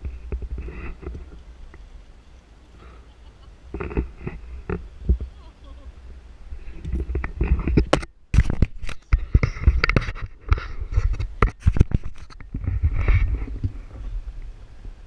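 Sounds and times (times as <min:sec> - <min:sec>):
scraping against camera: 0:00.0 - 0:01.8, 0:03.7 - 0:05.4, 0:06.5 - 0:14.3.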